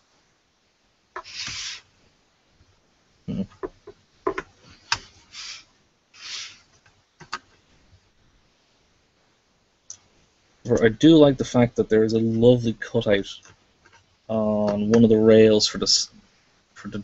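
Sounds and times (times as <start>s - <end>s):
short hissing rubs: 1.2s - 2.0s, 4.6s - 6.8s.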